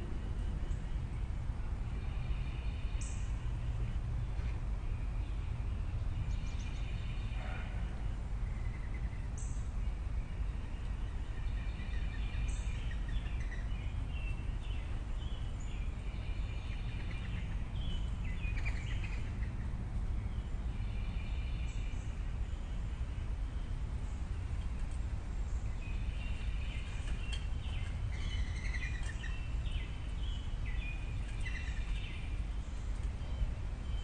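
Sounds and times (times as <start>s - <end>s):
steady low rumble: 0.0s - 34.0s
birds chirping and calling: 6.3s - 23.1s, 24.1s - 34.0s.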